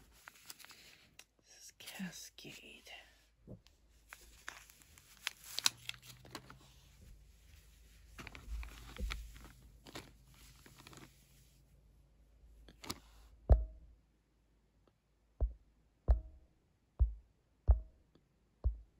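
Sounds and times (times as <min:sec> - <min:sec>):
plastic bag crinkling: 0:04.1 - 0:06.8, 0:08.0 - 0:11.2.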